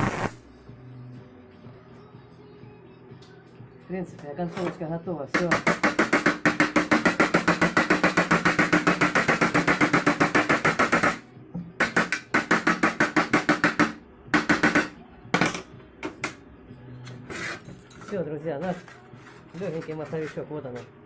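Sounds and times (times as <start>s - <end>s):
hammer tapping on ringing sheet metal: 5.4s - 15.6s.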